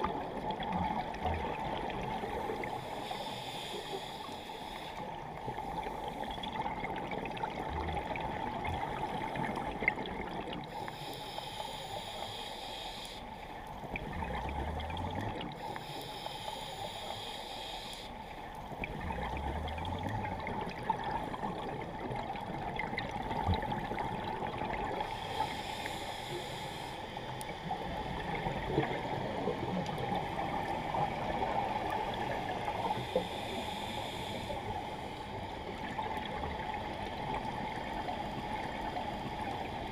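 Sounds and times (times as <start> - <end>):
exhaled bubbles burbling: 0.0 - 2.6, 18.8 - 25.1
diver breathing through regulator: 2.2 - 6.3, 10.7 - 13.3, 15.6 - 18.2, 25.0 - 27.2, 32.7 - 35.3.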